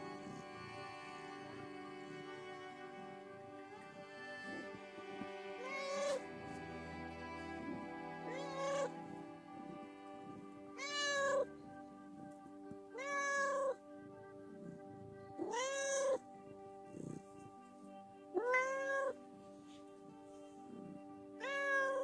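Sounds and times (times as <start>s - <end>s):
cat meowing loudly: 5.6s - 6.2s, 8.2s - 9.0s, 10.8s - 11.5s, 12.9s - 13.8s, 15.4s - 16.2s, 18.4s - 19.2s, 21.4s - 22.0s.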